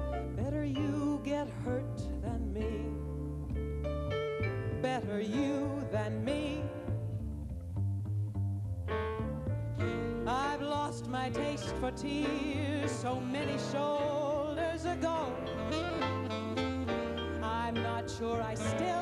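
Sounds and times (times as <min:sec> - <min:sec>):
live band bass line: 0:00.0 - 0:19.0
person singing with vibrato: 0:04.8 - 0:07.1, 0:09.8 - 0:19.0.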